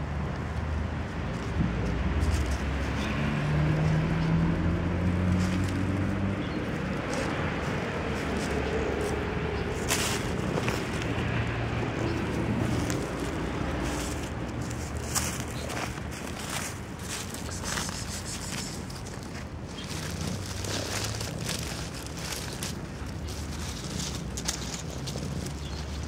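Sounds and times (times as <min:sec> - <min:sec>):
dry leaves crackling: 0:00.0 - 0:26.0
vehicle engine humming: 0:00.0 - 0:26.0.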